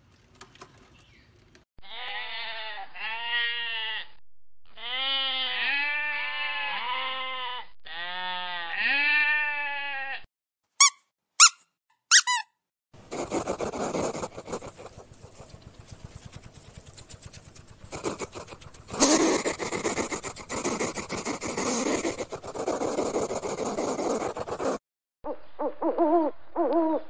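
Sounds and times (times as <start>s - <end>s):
sheep bleating: 1.8s - 10.3s
short high squeaks: 10.8s - 12.6s
hedgehog rustling and snuffling: 13.0s - 24.8s.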